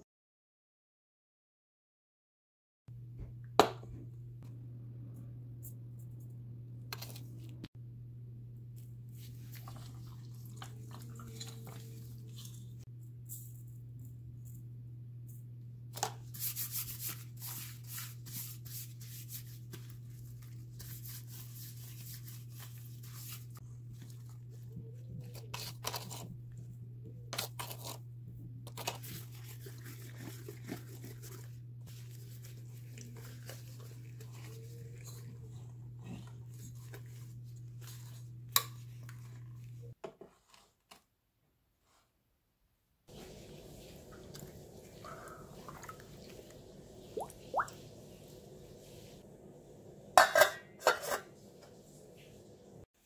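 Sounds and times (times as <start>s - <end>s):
steady low hum: 2.9s - 40.0s
gloved hand rubbing wet chicken: 16.3s - 25.3s, 29.0s - 35.8s.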